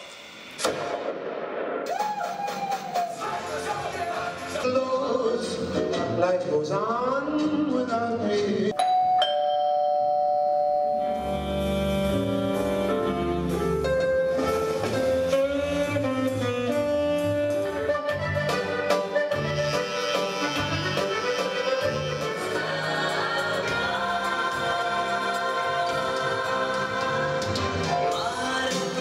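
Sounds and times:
instrumental background music: 11.0s - 29.0s.

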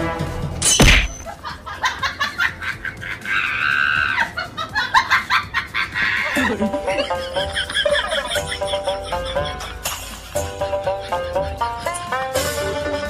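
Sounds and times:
shrill squawking cry: 3.2s - 4.4s.

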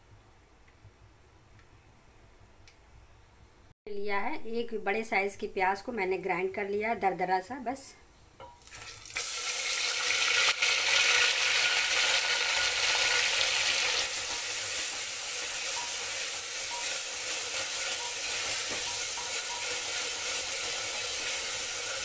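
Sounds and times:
onion sizzling in hot oil: 8.5s - 22.0s
spatula stirring: 12.6s - 22.0s.

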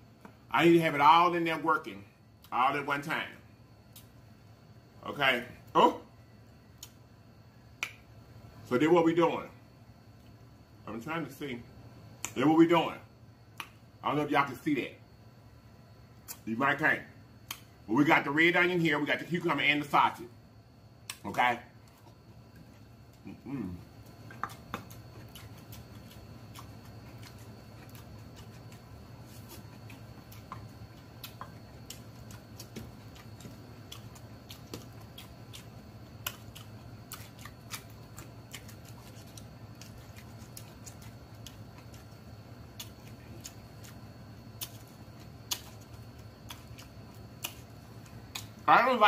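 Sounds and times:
faint steady hum: 0.0s - 49.0s
chewing with crunches: 21.0s - 49.0s.

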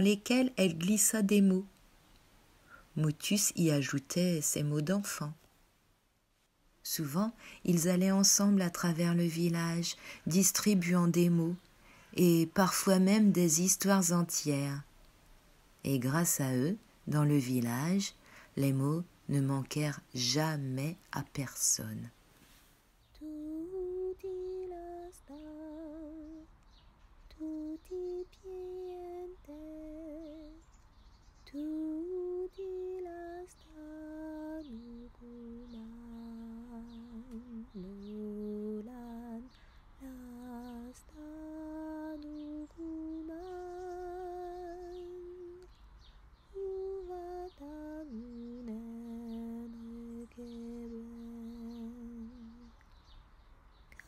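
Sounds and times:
woman humming: 23.2s - 26.5s, 27.3s - 30.6s, 31.5s - 45.7s, 46.5s - 52.8s.

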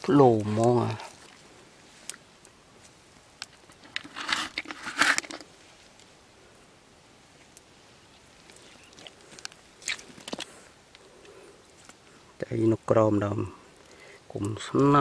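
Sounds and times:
hands crunching in dry soil: 0.0s - 6.0s, 8.1s - 11.1s.

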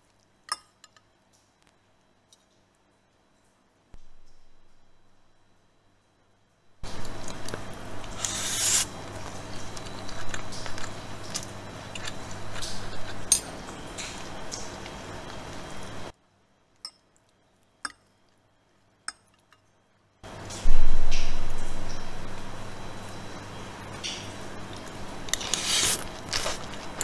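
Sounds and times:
steady low hum: 3.9s - 16.1s, 20.2s - 27.0s
cutlery scraping ceramic plate: 8.2s - 8.9s.

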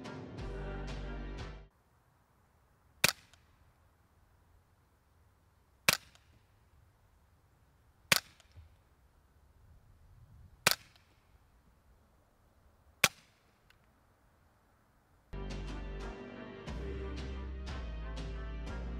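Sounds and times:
suppressed rifle shots: 3.0s - 3.6s, 5.8s - 6.6s, 8.0s - 8.8s, 10.6s - 11.4s, 13.0s - 13.8s.

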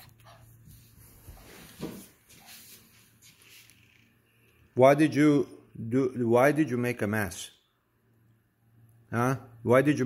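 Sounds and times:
faint scuffling: 0.0s - 3.8s.

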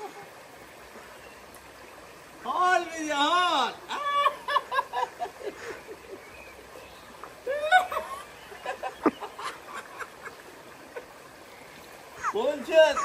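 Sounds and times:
water splashing and running: 0.0s - 13.0s
people laughing: 3.9s - 6.2s, 7.5s - 11.1s, 12.2s - 13.0s.

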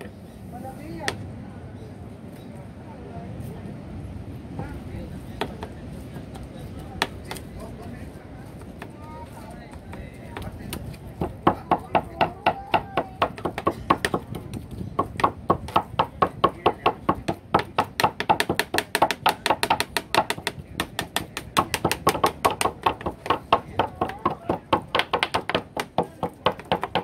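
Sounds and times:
knife chopping on cutting board: 12.7s - 27.0s.

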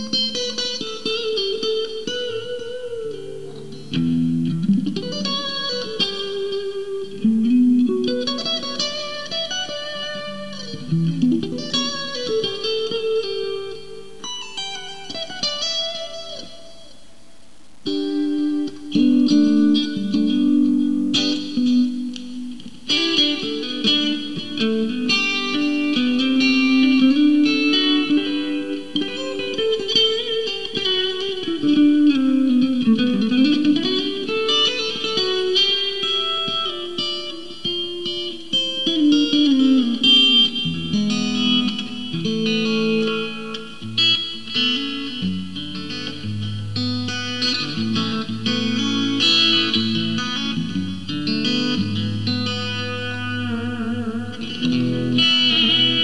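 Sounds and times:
clean electric guitar melody: 0.0s - 56.0s
guitar tremolo pitch bend: 17.8s - 56.0s.

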